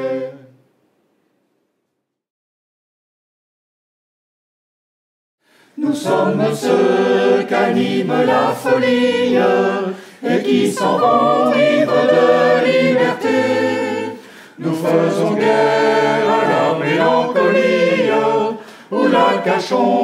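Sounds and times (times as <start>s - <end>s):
mixed choir singing in harmony: 0.0s - 0.6s, 5.8s - 20.0s.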